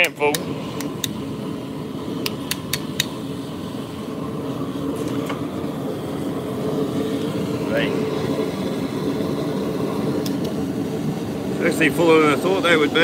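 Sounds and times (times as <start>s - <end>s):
low mechanical drone: 0.0s - 13.0s.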